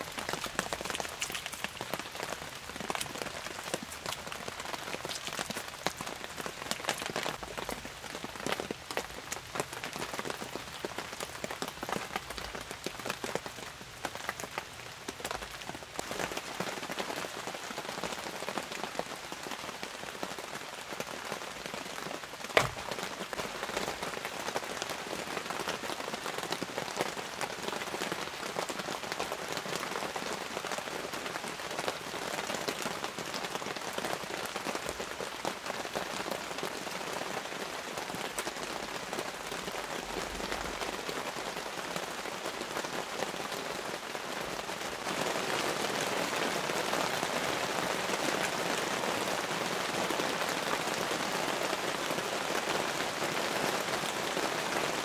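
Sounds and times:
steady rain pattering: 0:00.0 - 0:55.0
sharp knock: 0:22.6 - 0:23.0.

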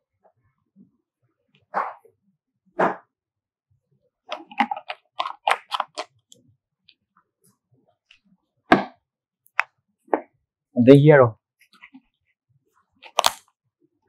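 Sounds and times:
plastic clicks and rattles: 0:04.3 - 0:06.4.

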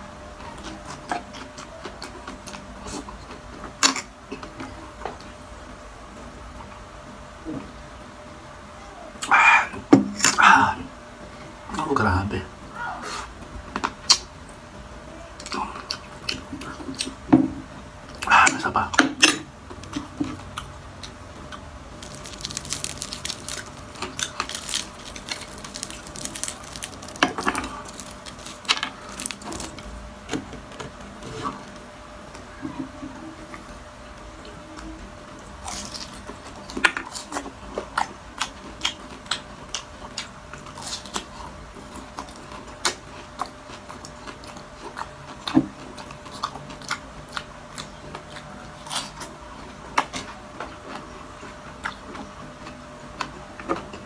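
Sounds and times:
faint steady hum: 0:00.0 - 0:54.0
crunching and chewing: 0:00.3 - 0:05.4, 0:15.4 - 0:17.3, 0:18.0 - 0:54.0
sharp crackles of crispy food: 0:21.9 - 0:30.0, 0:35.5 - 0:37.5, 0:38.4 - 0:44.6.

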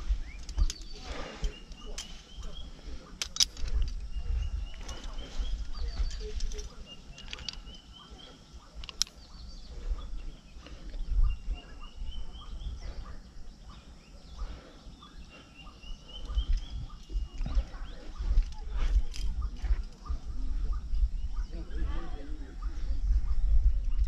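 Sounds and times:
wind rumble on microphone: 0:00.0 - 0:24.0.

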